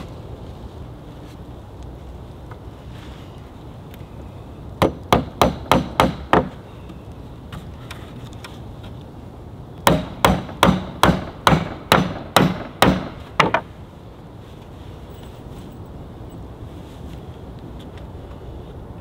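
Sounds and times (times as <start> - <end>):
hammer driving nails into wood: 4.8 - 6.5, 9.8 - 13.7.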